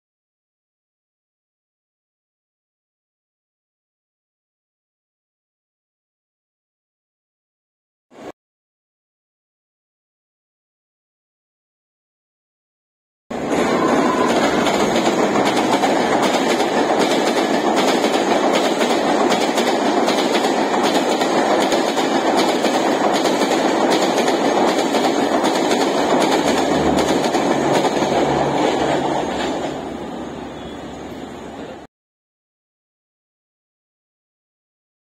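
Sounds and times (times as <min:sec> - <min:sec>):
train rolling past: 0:13.3 - 0:31.9
wheels clattering over rail joints: 0:13.4 - 0:30.2.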